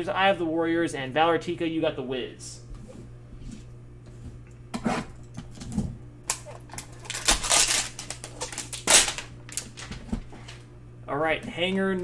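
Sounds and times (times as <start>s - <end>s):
cellophane crackling: 6.3s - 10.6s.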